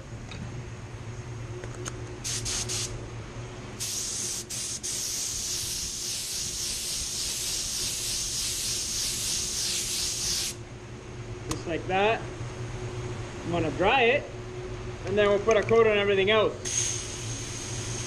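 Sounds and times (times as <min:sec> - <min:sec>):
paint spray gun hissing: 0:02.2 - 0:03.0, 0:03.8 - 0:10.6, 0:16.7 - 0:18.0.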